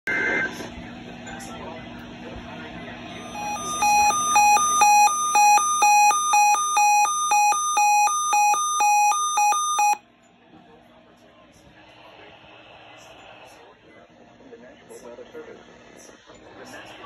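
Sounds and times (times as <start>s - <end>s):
weather radio alarm beeping: 3.1s - 10.0s.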